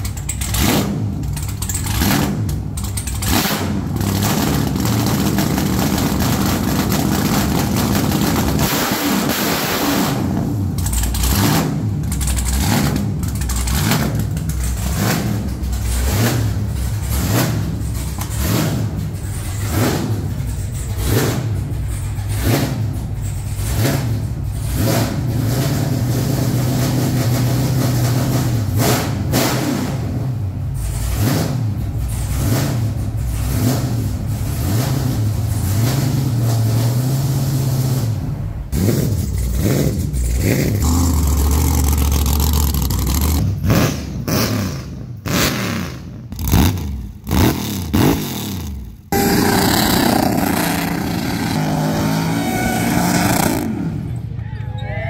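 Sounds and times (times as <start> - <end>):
truck engine at high revs: 0.0 - 54.4
truck engine idling and revving: 0.0 - 55.0.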